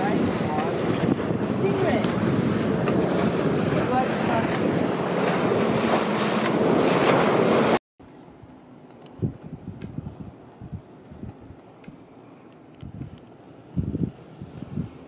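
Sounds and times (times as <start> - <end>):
wind buffeting microphone: 0.0 - 7.2, 9.1 - 11.6, 12.8 - 15.0
water rushing past hull: 0.0 - 7.8.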